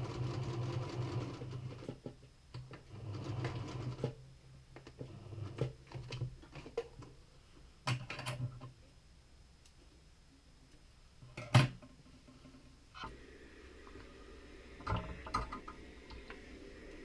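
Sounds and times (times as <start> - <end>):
sewing machine stitching: 0.0 - 2.0, 2.9 - 4.2.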